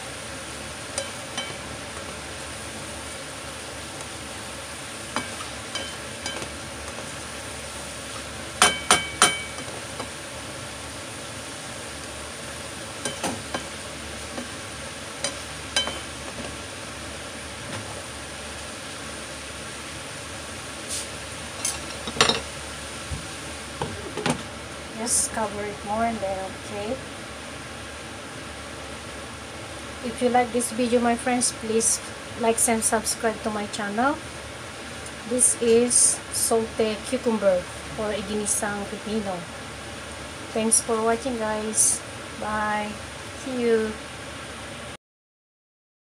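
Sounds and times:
food sizzling in a frying pan: 0.0s - 26.2s.

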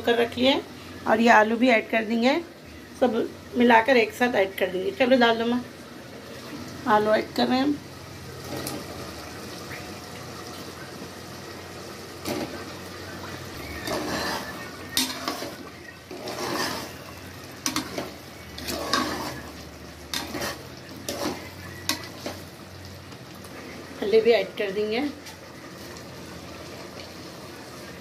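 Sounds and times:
metal ladle stirring in a pot: 13.6s - 22.4s.

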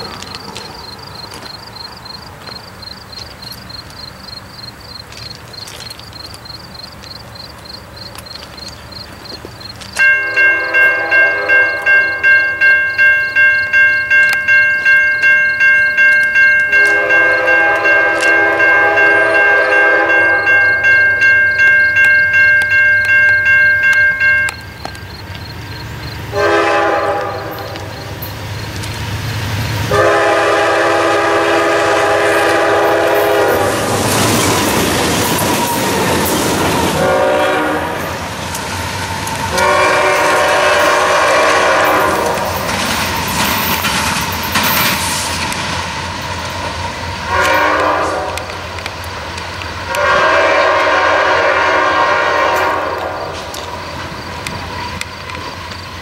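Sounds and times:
locomotive bell ringing: 0.0s - 38.2s, 39.2s - 45.0s
locomotive engine running: 0.0s - 56.0s
locomotive air horn blasts: 10.1s - 12.3s, 16.7s - 20.8s, 26.3s - 27.9s, 29.9s - 34.0s, 36.9s - 38.2s, 39.5s - 42.6s, 47.3s - 48.6s, 49.9s - 53.6s.

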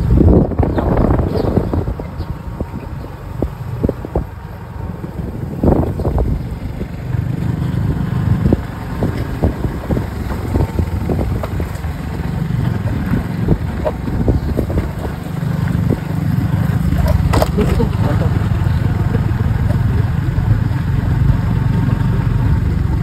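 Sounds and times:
motorcycle engine running: 0.0s - 23.0s
knocks from bumps: 16.8s - 18.3s.

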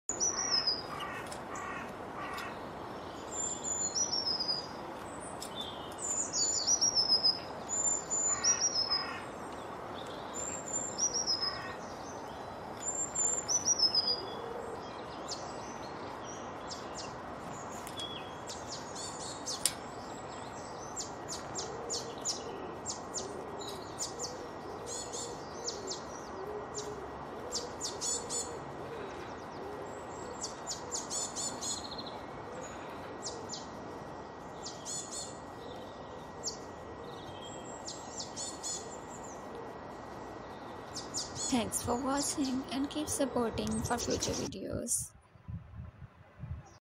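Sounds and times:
steady background hiss: 0.1s - 45.4s
songbirds whistling and chirping: 3.0s - 9.2s, 10.0s - 28.6s.

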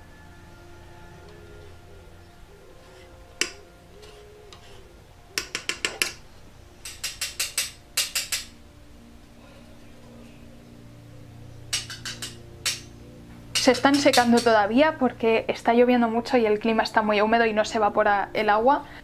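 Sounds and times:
faint background music: 0.0s - 19.0s
palette knife tapping on slab: 3.4s - 3.6s, 5.4s - 6.2s.

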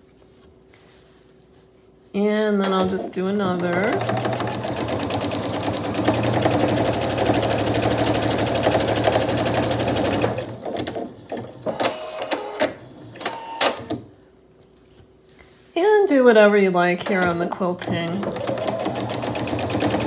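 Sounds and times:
sewing machine stitching: 3.4s - 13.9s, 17.8s - 20.0s.

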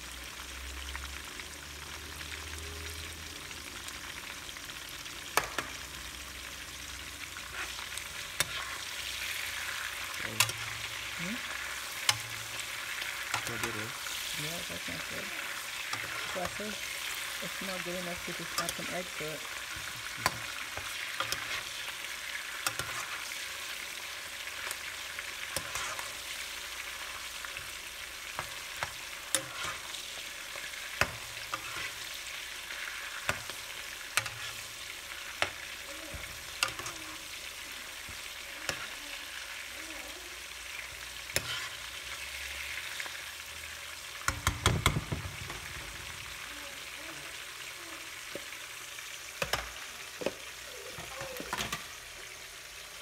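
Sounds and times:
vegetables sizzling in oil: 0.0s - 53.0s
spoon knocking against pan: 44.3s - 45.5s.

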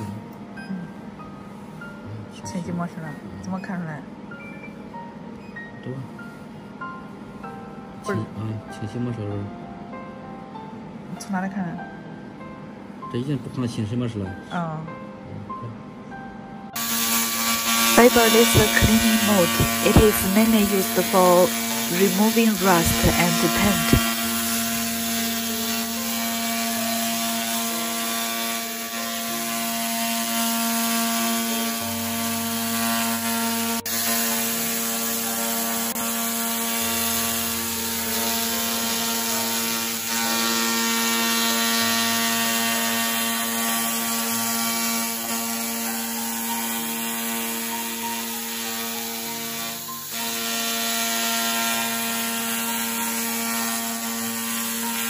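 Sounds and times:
laser cleaner buzzing hum: 16.7s - 55.0s.

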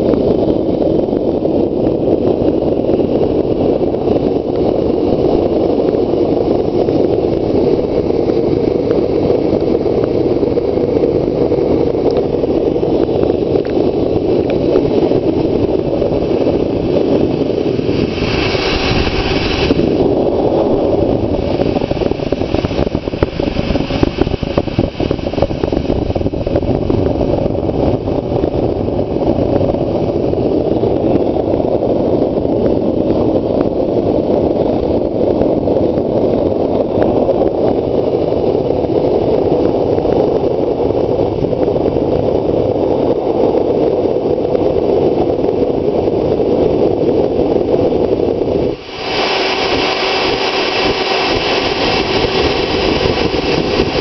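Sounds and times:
furnace burner roar: 0.0s - 54.0s
bright hiss: 17.5s - 20.1s.

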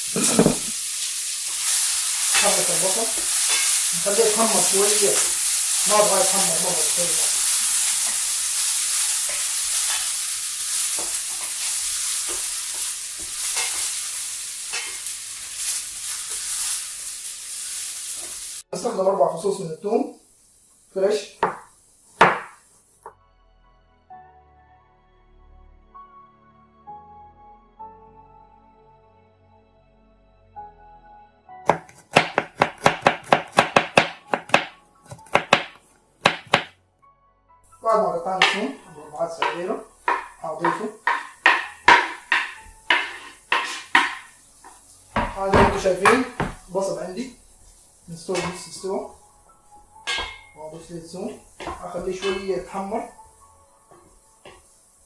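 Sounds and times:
onion sizzling in a frying pan: 0.0s - 23.1s, 31.7s - 36.7s, 37.7s - 55.0s
wooden spatula scraping a pan: 1.5s - 4.4s, 7.3s - 16.9s, 38.3s - 49.2s, 50.0s - 54.7s
knife chopping on wooden board: 21.4s - 22.6s, 31.7s - 36.7s, 39.4s - 44.2s.

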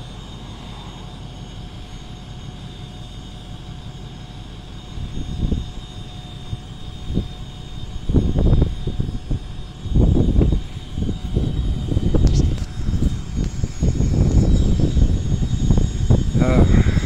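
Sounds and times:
dump truck engine running: 0.0s - 15.2s
faint steady whine: 0.0s - 17.0s
wind buffeting microphone: 4.8s - 17.0s.

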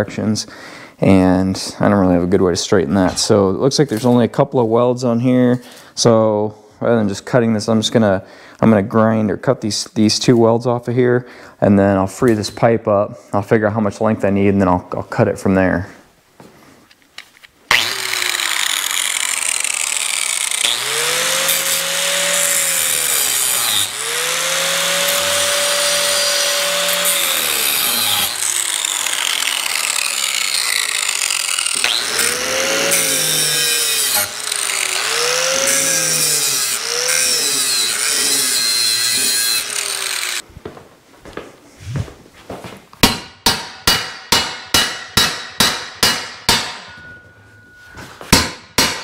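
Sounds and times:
angle grinder cutting steel: 17.7s - 40.4s.

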